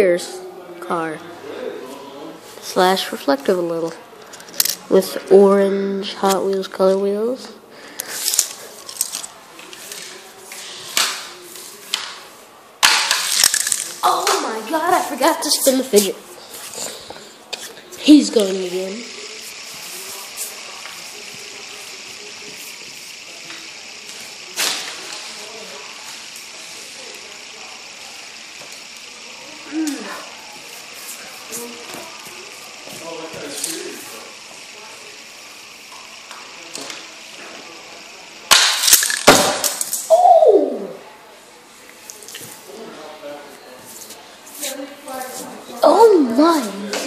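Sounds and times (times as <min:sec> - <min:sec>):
fidget spinner whirring: 0:01.0 - 0:41.2, 0:41.8 - 0:47.0
toy cars clattering on hard surfaces: 0:08.0 - 0:11.2, 0:12.8 - 0:14.5, 0:38.6 - 0:40.1.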